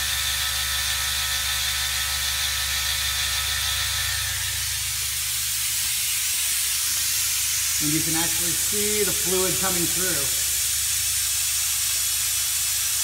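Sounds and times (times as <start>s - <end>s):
pump humming: 0.0s - 13.0s
vacuum bleeder hissing: 3.4s - 13.0s.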